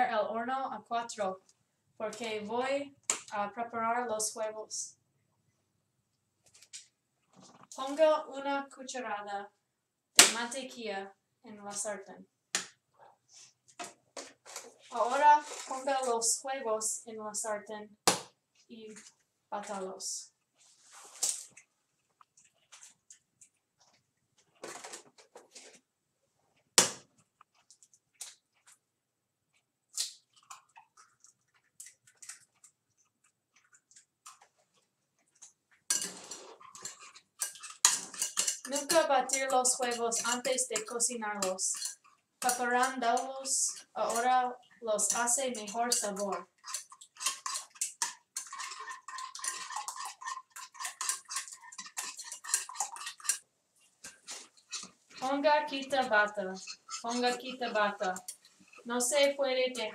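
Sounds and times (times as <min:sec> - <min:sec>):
rough scraping stir: 0:14.5 - 0:16.2, 0:20.6 - 0:21.5, 0:35.9 - 0:59.1.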